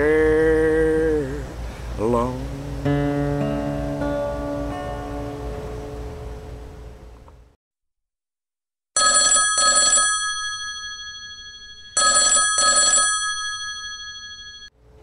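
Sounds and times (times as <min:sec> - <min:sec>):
telephone bell ringing: 0:09.0 - 0:14.8.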